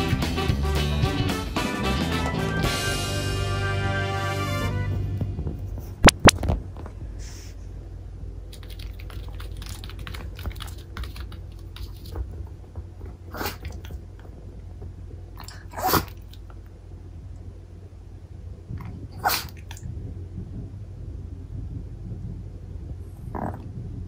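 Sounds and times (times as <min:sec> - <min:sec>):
dog footsteps on mat: 0:08.6 - 0:14.9
dog sneezing: 0:13.3 - 0:13.8, 0:15.4 - 0:16.2, 0:19.2 - 0:19.6.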